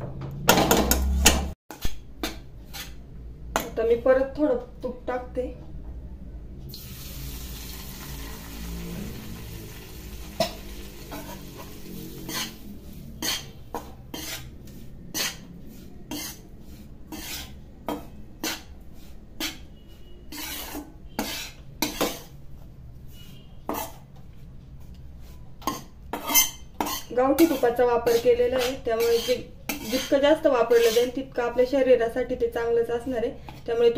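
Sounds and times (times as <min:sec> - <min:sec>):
metal spatula scraping and knocking: 0:00.0 - 0:03.8, 0:10.2 - 0:31.3
ghee sizzling in pan: 0:06.7 - 0:14.4.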